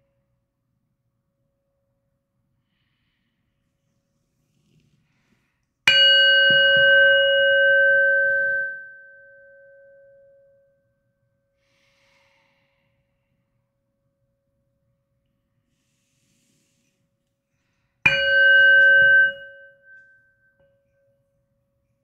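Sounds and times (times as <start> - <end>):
metal singing bowl ringing: 5.9 - 10.8, 18.1 - 21.2.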